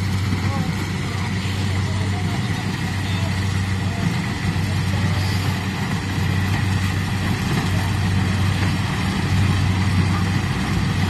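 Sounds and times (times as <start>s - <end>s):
harvester engine hum: 0.0s - 11.0s.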